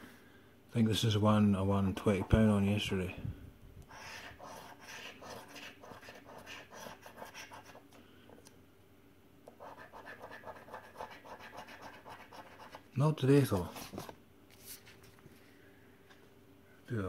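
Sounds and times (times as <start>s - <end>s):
coin scratching a scratchcard: 3.9s - 7.8s, 9.6s - 12.8s.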